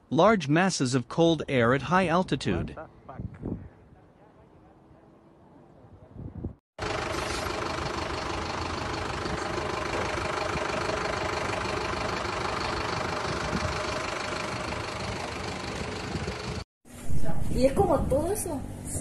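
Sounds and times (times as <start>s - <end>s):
strong wind blowing: 2.4s - 4.0s, 6.0s - 6.6s, 12.7s - 16.6s
vehicle engine running: 6.8s - 16.6s.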